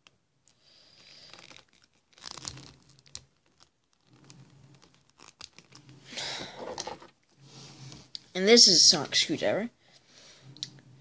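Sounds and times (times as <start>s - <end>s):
plastic toys rustling and crinkling: 0.0s - 8.0s.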